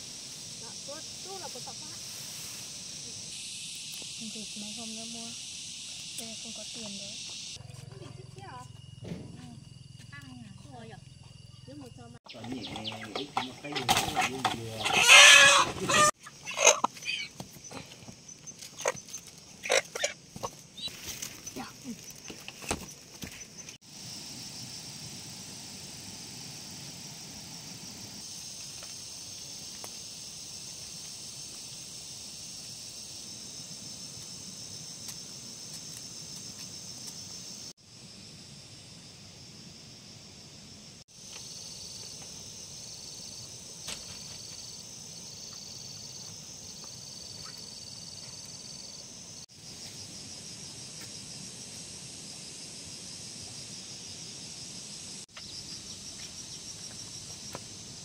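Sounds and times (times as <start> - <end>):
insects chirring: 0.0 - 58.0
pulsing insect tone: 0.0 - 58.0.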